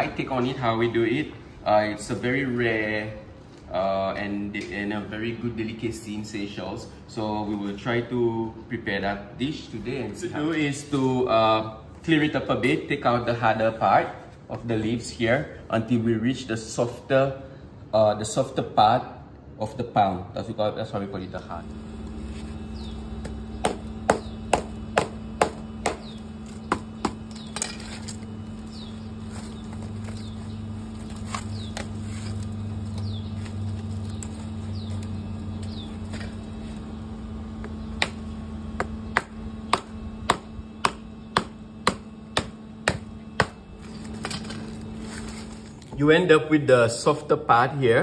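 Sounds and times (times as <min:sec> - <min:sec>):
machete chopping palm leaves: 0:22.4 - 0:35.1, 0:38.0 - 0:45.8.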